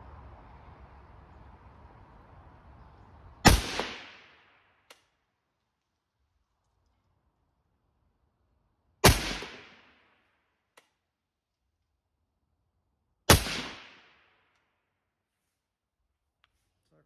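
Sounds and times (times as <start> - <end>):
rifle shots with echo: 3.4 - 4.5, 9.0 - 10.0, 13.3 - 14.3.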